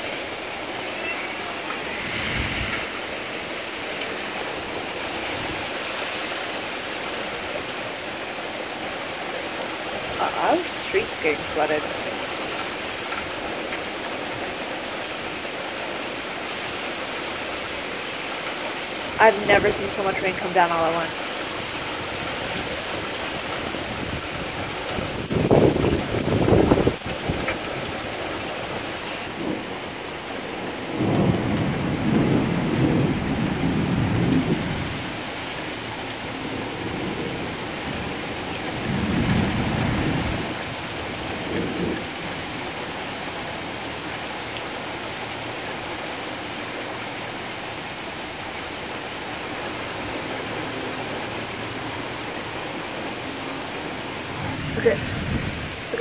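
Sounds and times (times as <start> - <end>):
torrential rain pouring: 0.0 - 56.0
thunder rumbling: 0.2 - 5.7, 21.8 - 28.0, 30.9 - 42.4.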